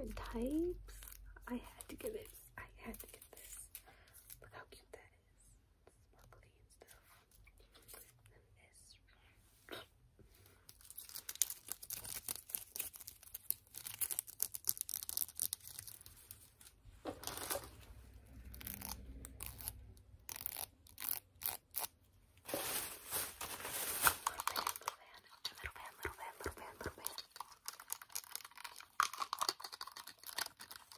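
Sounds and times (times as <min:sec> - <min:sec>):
plastic packaging crinkling: 0:10.7 - 0:17.8, 0:22.4 - 0:26.3, 0:27.0 - 0:30.9.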